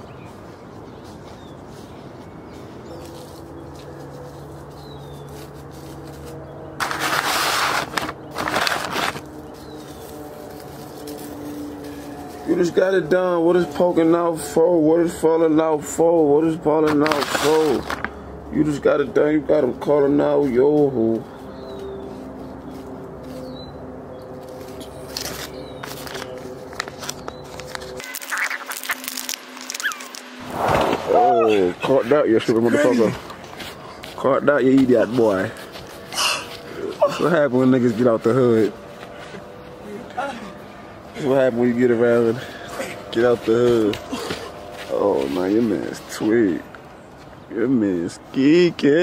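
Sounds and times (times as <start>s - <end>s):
steady low hum: 0.0s - 17.0s, 17.7s - 49.0s
plastic bag crinkling: 25.3s - 30.4s.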